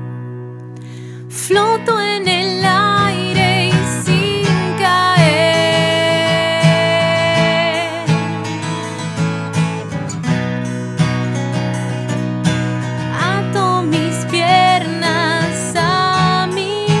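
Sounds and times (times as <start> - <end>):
strummed acoustic guitar: 0.0 - 17.0
woman singing: 1.2 - 8.5, 13.1 - 17.0.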